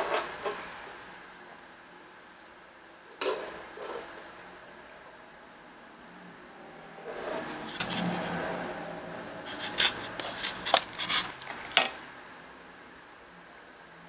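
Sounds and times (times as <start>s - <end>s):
plastic containers rustling: 7.4s - 8.4s, 9.5s - 12.0s.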